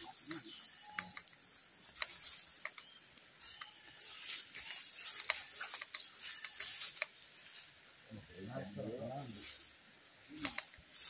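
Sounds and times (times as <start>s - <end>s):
insects droning: 0.0s - 11.0s
light clicks and crackles: 0.9s - 3.8s, 4.4s - 7.3s, 10.4s - 10.8s.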